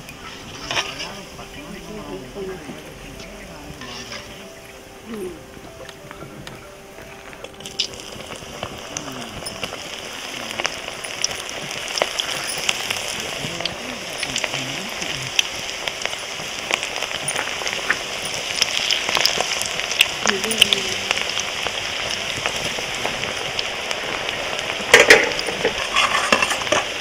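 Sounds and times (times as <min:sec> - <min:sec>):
food deep-frying in hot oil: 0:00.0 - 0:27.0.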